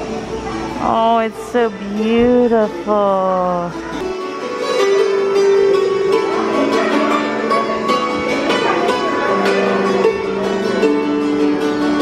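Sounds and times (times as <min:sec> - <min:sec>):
hammered dulcimer tune: 0:03.6 - 0:12.0.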